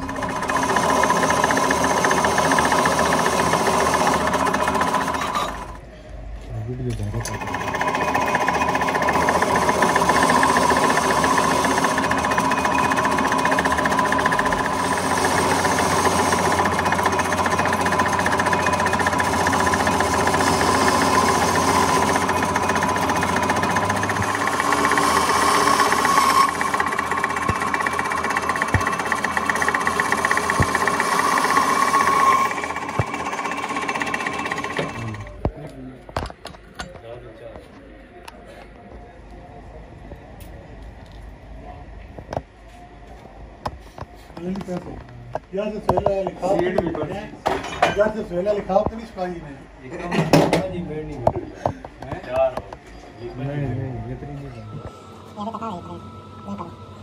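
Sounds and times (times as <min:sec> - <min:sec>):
metal lathe cutting whine: 0:07.3 - 0:35.3.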